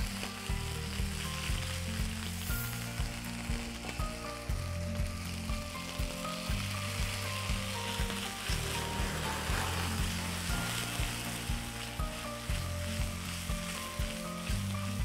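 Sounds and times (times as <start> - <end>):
background music with beat: 0.0 - 15.0
fish frying in hot oil: 0.0 - 15.0.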